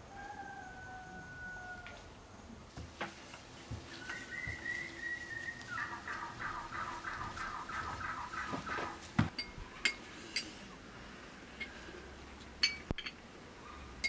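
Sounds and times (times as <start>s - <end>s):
bird calling: 3.8s - 10.0s.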